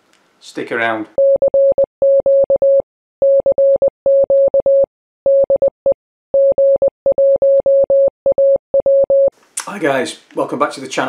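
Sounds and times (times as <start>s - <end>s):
morse code beeping: 1.2s - 9.3s.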